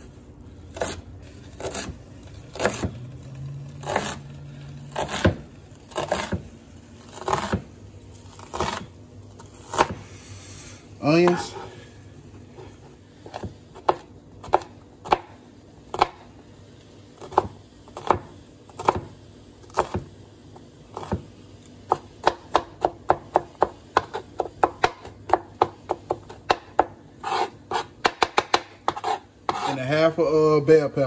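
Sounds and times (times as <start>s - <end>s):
knife chopping on cutting board: 0.7s - 3.1s, 3.8s - 4.2s, 4.9s - 6.5s, 7.1s - 7.7s, 8.3s - 8.9s, 9.5s - 10.0s, 12.6s - 16.3s, 17.2s - 20.1s, 20.9s - 21.3s, 21.9s - 29.8s.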